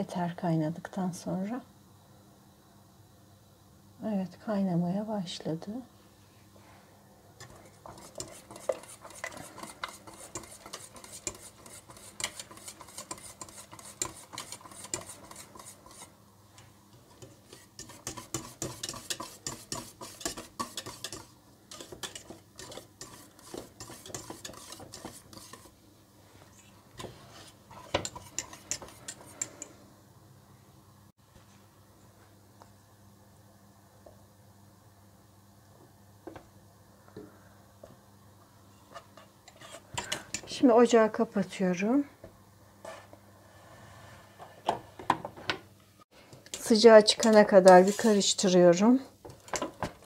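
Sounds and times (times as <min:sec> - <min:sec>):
whisk scraping a metal pot: 0:07.4 - 0:16.2, 0:17.1 - 0:25.8, 0:27.0 - 0:29.7, 0:38.9 - 0:40.5, 0:46.5 - 0:48.5.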